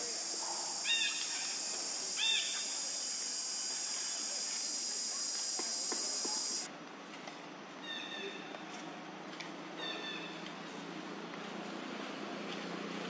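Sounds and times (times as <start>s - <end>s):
insect chorus drone: 0.0s - 6.7s
short high arching calls: 0.0s - 6.7s.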